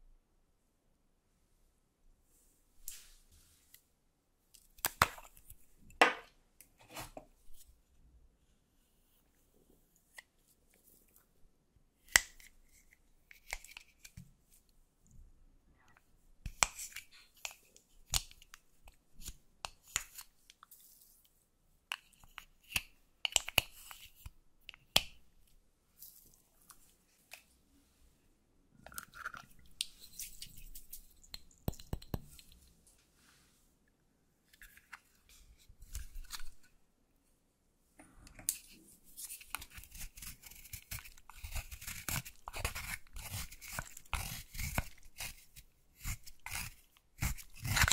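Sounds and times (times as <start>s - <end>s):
spatula scraping powder makeup: 38.5s - 47.9s.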